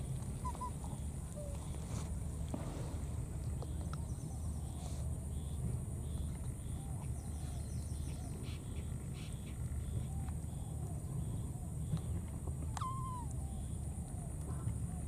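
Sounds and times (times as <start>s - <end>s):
faint animal calls: 0.0s - 2.4s, 12.6s - 15.0s.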